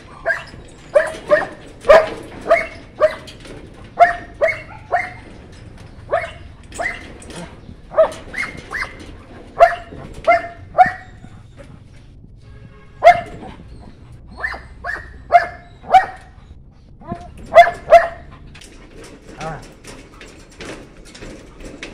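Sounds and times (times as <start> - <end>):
puppy barking: 0.2 - 3.3, 4.0 - 5.4, 6.1 - 7.1, 7.9 - 9.0, 9.6 - 11.4, 13.0 - 16.4, 17.0 - 18.4.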